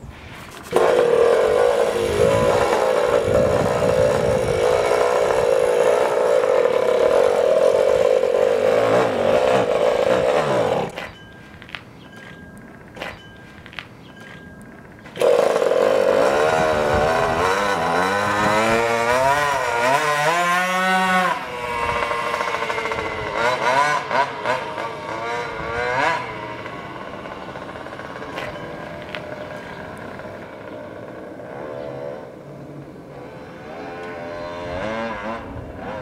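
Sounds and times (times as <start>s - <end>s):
scooter engine revving: 0.0s - 36.0s
throttle blips: 10.9s - 15.2s.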